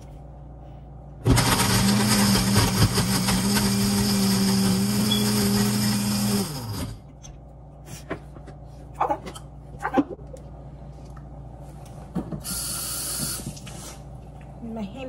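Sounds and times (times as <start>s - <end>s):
electric blender running: 1.2s - 7.1s.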